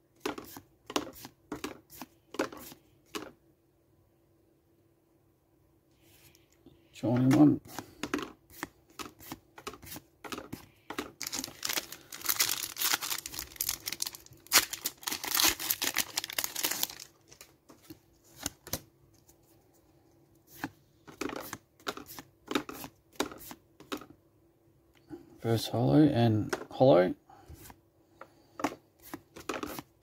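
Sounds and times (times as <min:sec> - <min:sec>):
foil wrapper crinkling: 0:11.2 - 0:17.5
cards flicking and sliding: 0:28.6 - 0:29.9.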